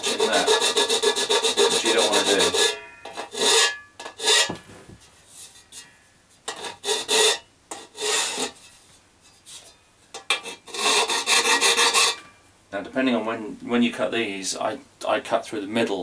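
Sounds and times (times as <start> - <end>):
hand file rasping on metal: 0.0 - 4.5, 6.5 - 8.6, 10.2 - 12.2.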